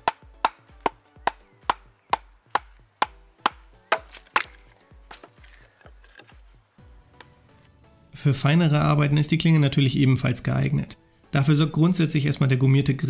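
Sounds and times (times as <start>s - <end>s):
baton knocking on knife spine: 0.0s - 5.4s
log splitting: 0.0s - 6.5s.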